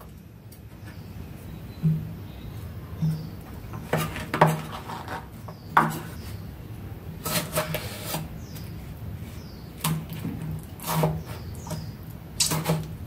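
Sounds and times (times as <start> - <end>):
knife scraping through tomato: 7.2 - 8.6, 9.2 - 13.0.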